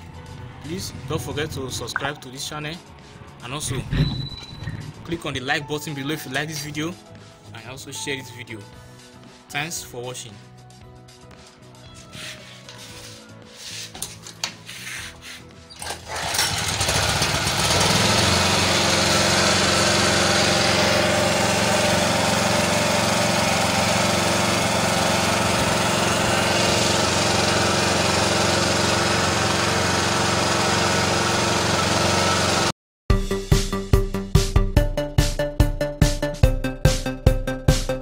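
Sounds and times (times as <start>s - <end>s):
petrol generator engine running: 15.8s - 32.7s.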